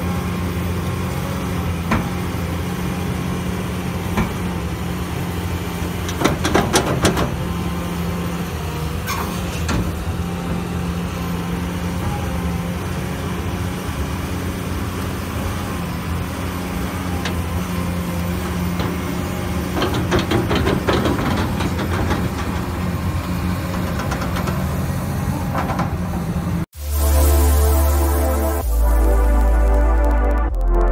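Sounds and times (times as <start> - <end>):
excavator diesel engine running: 0.0 - 30.5
metallic clanking: 5.9 - 7.9, 17.2 - 26.6.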